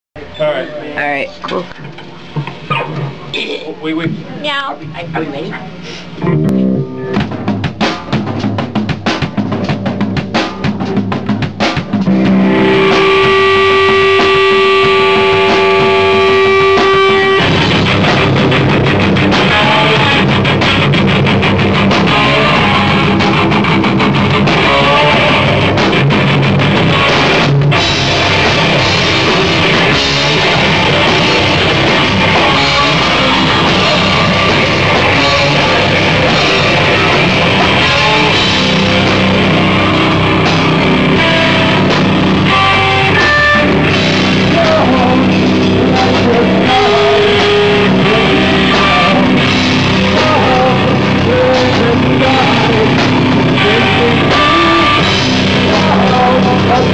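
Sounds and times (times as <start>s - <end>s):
electric guitar: 5.2s - 56.9s
drum kit with crashing cymbals: 5.8s - 56.9s
person singing into microphone: 22.0s - 23.3s, 44.4s - 56.9s.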